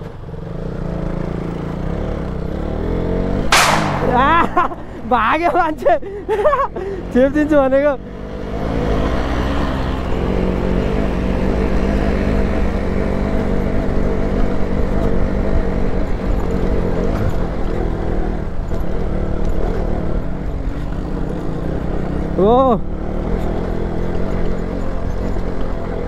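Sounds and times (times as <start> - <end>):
motorcycle engine running: 0.0 - 26.0
wind: 0.0 - 26.0
low rumble from rough ground: 2.6 - 22.2.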